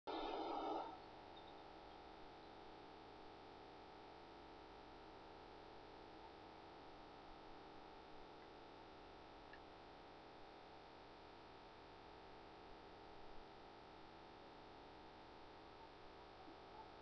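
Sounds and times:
faint hum and hiss: 0.1 - 17.0
very faint ticks: 9.4 - 9.7.

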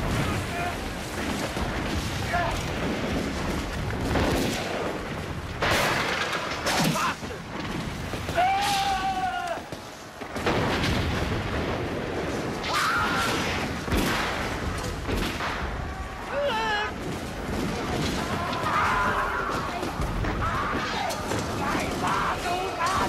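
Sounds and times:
gunshots: 0.0 - 23.0
men yelling: 8.3 - 9.7, 18.0 - 23.0
explosion booms: 10.3 - 16.2.

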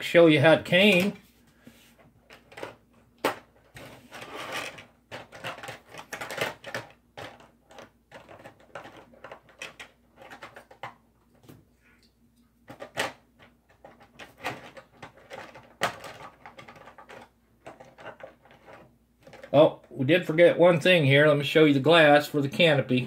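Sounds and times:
plastic parts clicking together: 2.2 - 11.0, 12.7 - 19.6.

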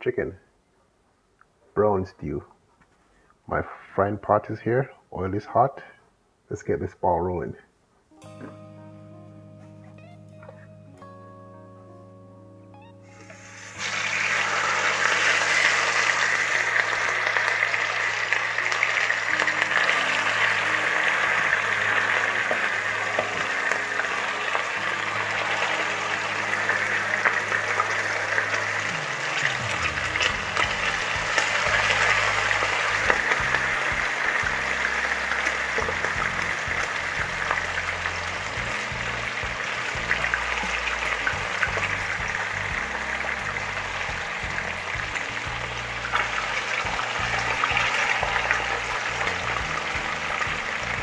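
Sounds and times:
chicken sizzling in hot oil: 13.2 - 51.0.

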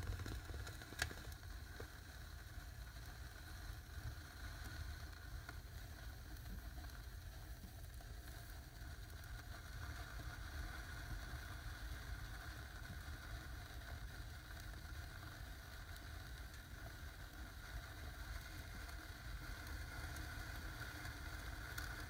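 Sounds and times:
fireworks fizzing: 0.0 - 2.1.

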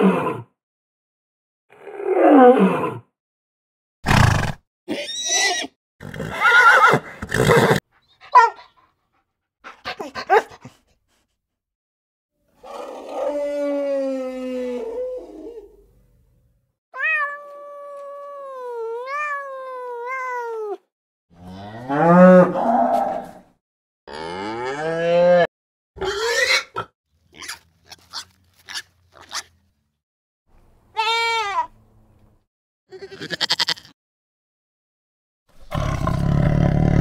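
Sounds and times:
cow mooing: 24.1 - 25.5
goat bleats: 32.9 - 34.0.

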